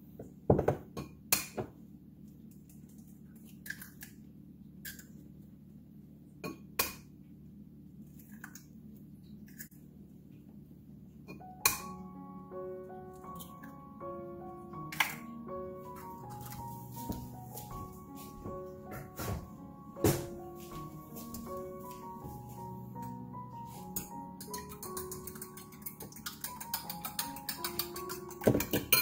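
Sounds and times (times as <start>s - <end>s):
eggs cracked against a bowl: 24.4s - 29.0s.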